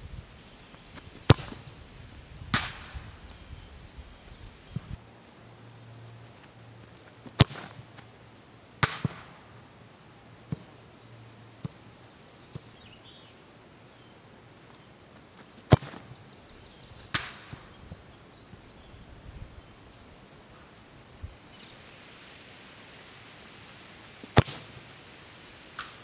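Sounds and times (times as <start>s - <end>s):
ball hitting goal: 1.2s - 1.7s
ball kicked hard: 1.2s - 1.7s, 7.4s - 7.8s, 15.7s - 16.1s, 24.3s - 24.7s.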